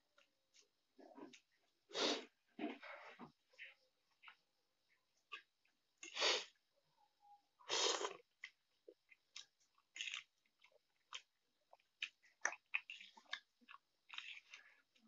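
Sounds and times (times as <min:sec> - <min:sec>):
wet chewing: 0:07.8 - 0:15.0.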